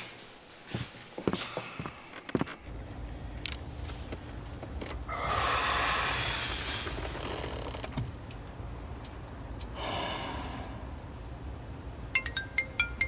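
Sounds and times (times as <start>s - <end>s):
low steady rumble: 2.6s - 13.0s
man sighing heavily: 9.8s - 10.9s.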